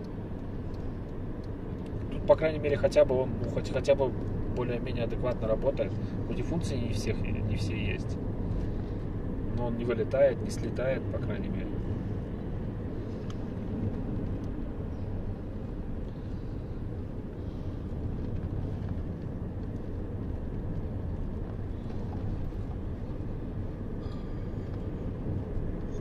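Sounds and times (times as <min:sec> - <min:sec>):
road and engine noise in car: 0:00.0 - 0:26.0.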